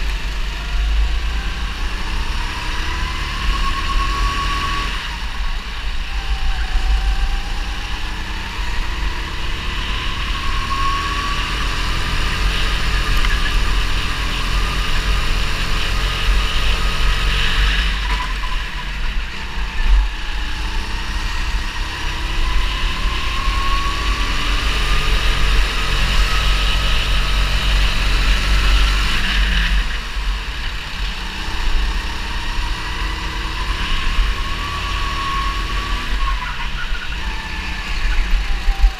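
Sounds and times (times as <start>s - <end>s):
constant low rumble: 0.0s - 2.0s, 36.0s - 38.9s
go-kart engine revving: 0.0s - 38.9s.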